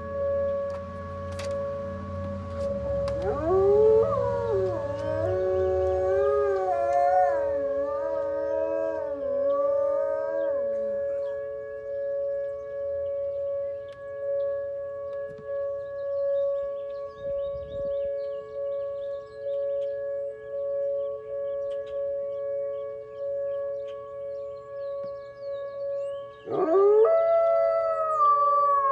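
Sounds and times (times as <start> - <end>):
two-tone warning siren: 0.0 - 28.9
dog howling: 3.1 - 11.4, 26.4 - 28.9.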